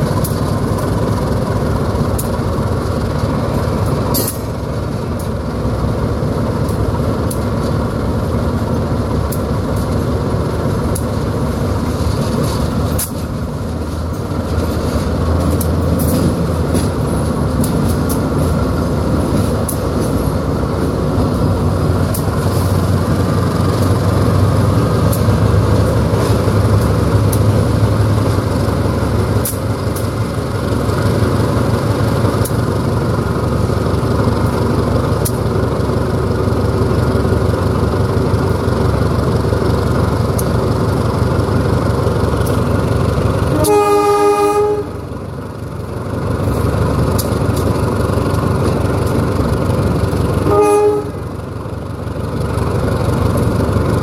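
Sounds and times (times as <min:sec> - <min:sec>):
diesel locomotive engine running hard: 0:00.0 - 0:54.0
locomotive horn blast: 0:43.5 - 0:45.1, 0:50.4 - 0:51.3.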